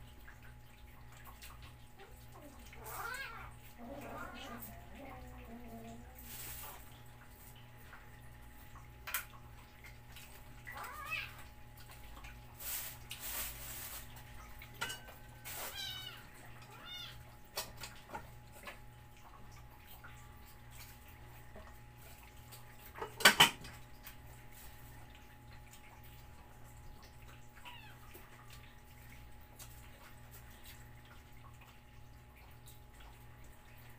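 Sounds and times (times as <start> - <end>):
cats meowing: 2.0 - 6.2, 10.6 - 11.5, 15.5 - 17.3, 27.6 - 28.2.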